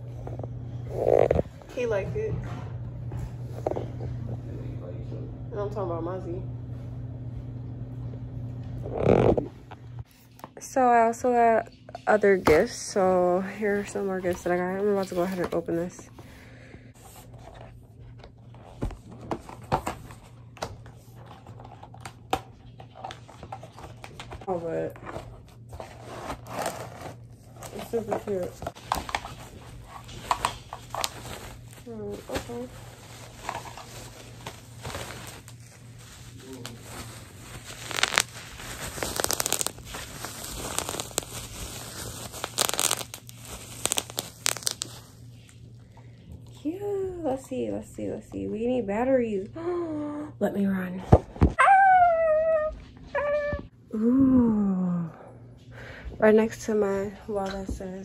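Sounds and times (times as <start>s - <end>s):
faint low hum: 0.0s - 42.4s
plastic wrapping crinkling and tearing: 21.2s - 45.5s.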